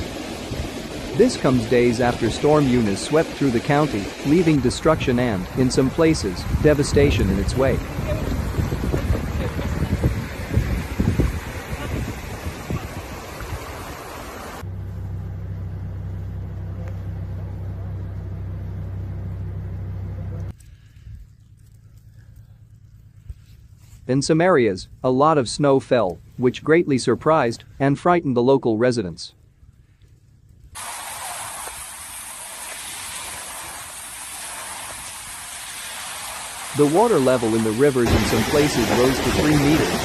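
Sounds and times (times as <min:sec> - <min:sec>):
fast-flowing river rushing: 0:00.0 - 0:05.7, 0:07.2 - 0:14.6, 0:36.4 - 0:40.0
wind noise on microphone: 0:06.3 - 0:14.6
car engine and road rumble: 0:14.2 - 0:25.5, 0:29.3 - 0:30.8.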